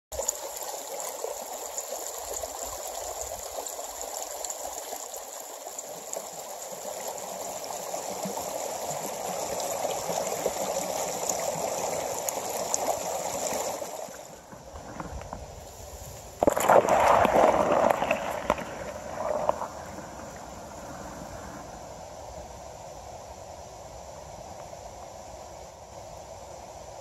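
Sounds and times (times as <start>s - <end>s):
stream flowing over rocks: 0.1s - 15.6s, 16.4s - 22.0s.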